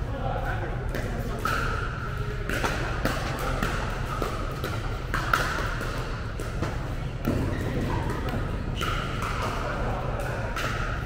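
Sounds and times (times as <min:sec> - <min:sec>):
ball bouncing on court: 0:00.9 - 0:11.0
pickleball paddle hits: 0:02.5 - 0:11.0.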